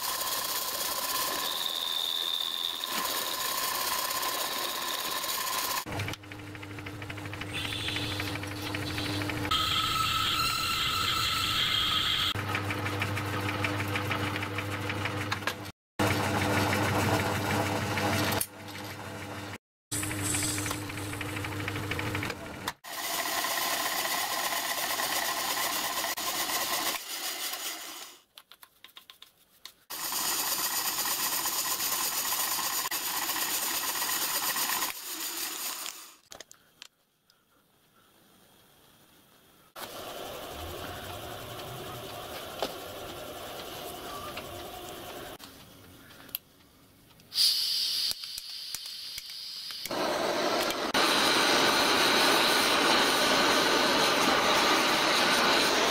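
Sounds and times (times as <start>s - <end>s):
lathe motor hum: 39.8s - 45.4s, 49.9s - 55.9s.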